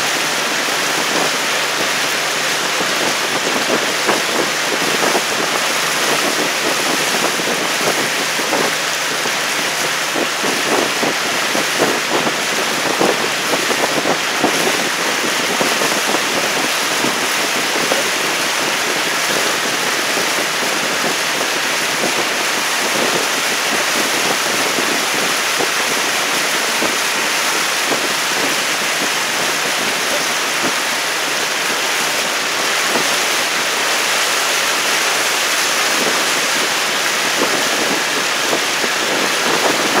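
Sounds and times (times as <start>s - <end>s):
moving water: 0.0s - 40.0s
paddles splashing in water: 0.0s - 40.0s.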